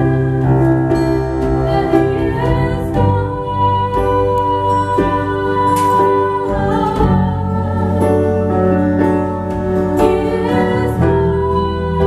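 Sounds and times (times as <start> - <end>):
acoustic guitar: 0.0 - 12.0
woman singing: 1.6 - 9.0, 9.9 - 12.0.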